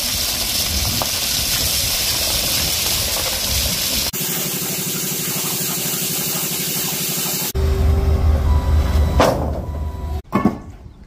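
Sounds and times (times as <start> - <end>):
gravel pouring: 0.0 - 7.5
loader engine rumbling: 7.5 - 11.0.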